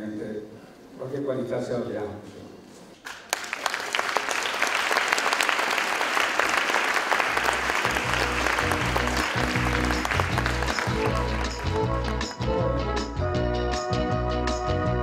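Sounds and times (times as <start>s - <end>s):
audience applauding: 3.1s - 12.6s
music with rhythmic bass line: 7.6s - 15.0s.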